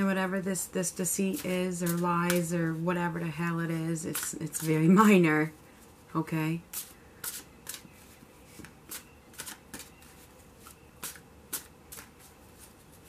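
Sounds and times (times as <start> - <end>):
cards being shuffled: 1.2 - 2.8, 3.7 - 5.1, 6.7 - 13.0.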